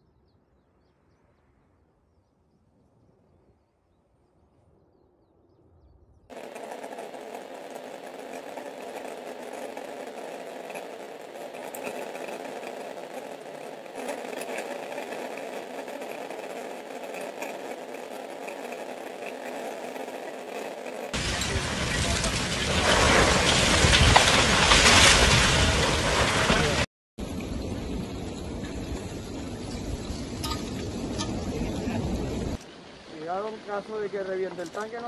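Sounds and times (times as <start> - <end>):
faint crackles: 6.3 - 26.8
volcano rushing noise: 6.3 - 30.3.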